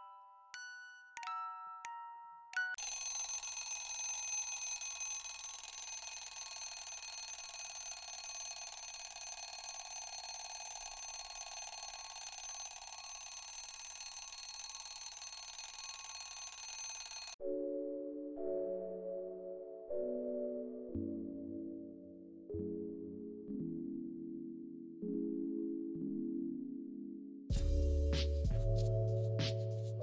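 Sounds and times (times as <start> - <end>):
high-pitched alarm ringing: 2.8 - 17.4.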